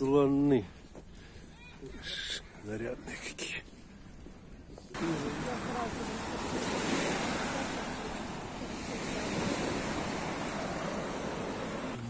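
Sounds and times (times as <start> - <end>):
wind: 0.0 - 12.0
sea surf: 5.0 - 12.0.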